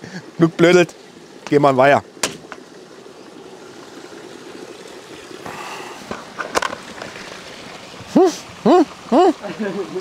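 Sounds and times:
outdoor background noise: 0.0 - 10.0
sharp knock: 2.2 - 2.6.

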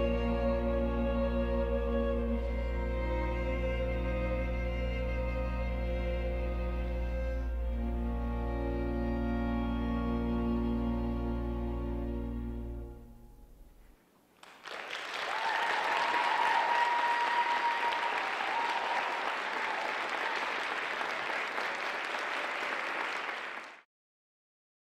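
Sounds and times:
audience applauding: 14.4 - 23.9
long held cheer: 14.7 - 23.8.

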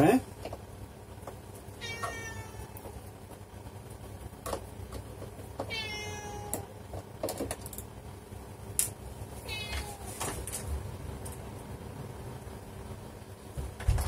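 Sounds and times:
cat meowing: 1.8 - 2.8, 5.7 - 6.7, 9.4 - 10.1.

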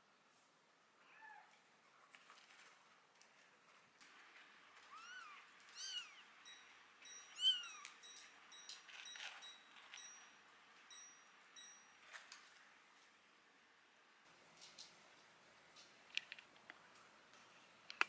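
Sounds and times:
light clicks in pellet litter: 15.7 - 18.0.

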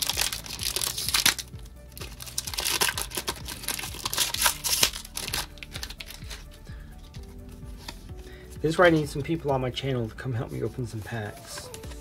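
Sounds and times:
foil wrapper tearing and crinkling: 0.0 - 6.5
background music: 0.0 - 12.0.

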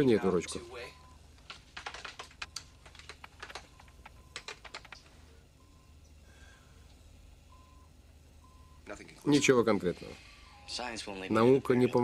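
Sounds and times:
keyboard keys clicking: 1.4 - 5.1
soft electronic beeps: 3.6 - 6.2, 7.5 - 8.8.

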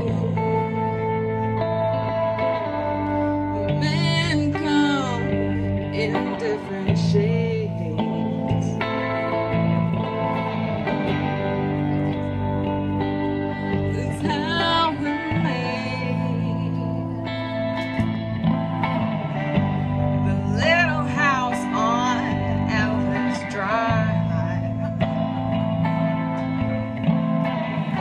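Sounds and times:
woman singing: 0.0 - 10.2, 13.6 - 17.9, 19.6 - 25.7
electric guitar playing: 0.0 - 28.0.

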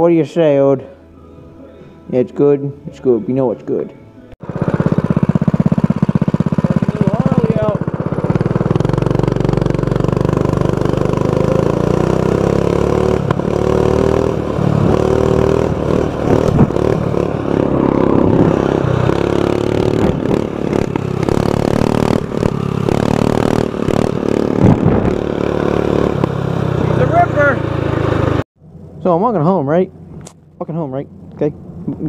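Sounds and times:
mini bike engine revving: 4.4 - 28.4.

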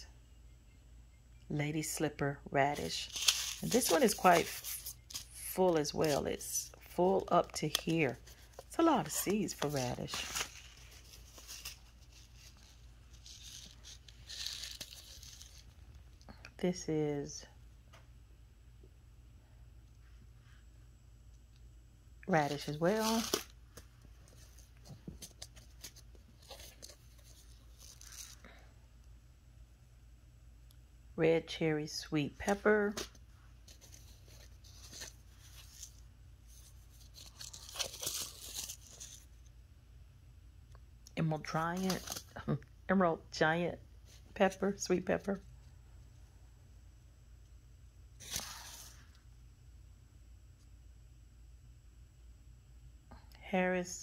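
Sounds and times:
paper envelopes rustling: 2.8 - 15.8, 22.3 - 28.5, 32.5 - 39.3, 41.5 - 42.4, 48.2 - 49.1.

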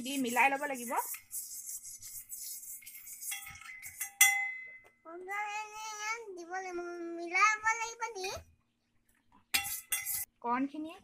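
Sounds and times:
spoon scraping steel bowl: 0.0 - 4.4, 9.5 - 10.3
bowl ringing clink: 3.4 - 5.0.

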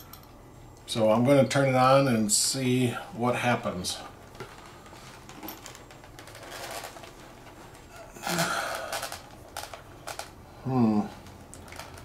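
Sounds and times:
helmet padding rustling: 4.1 - 10.4
breathy grunt: 7.9 - 9.2.

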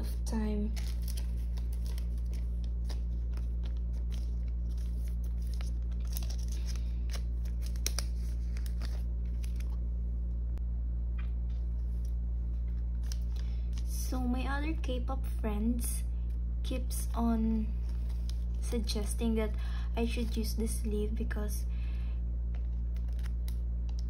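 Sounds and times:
low hum: 0.0 - 24.0
plastic sleeves crinkling: 0.5 - 9.9, 11.8 - 14.2, 17.7 - 20.7, 22.5 - 24.0.

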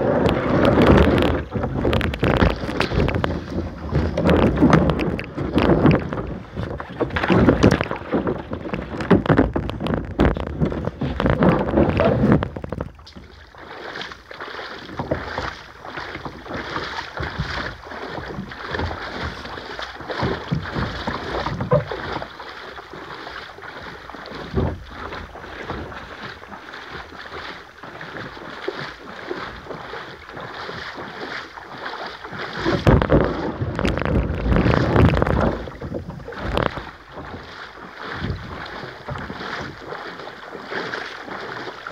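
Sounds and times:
wind buffeting microphone: 0.0 - 13.5, 32.5 - 37.5, 38.1 - 40.0
water splashing around kayak: 0.0 - 41.9.

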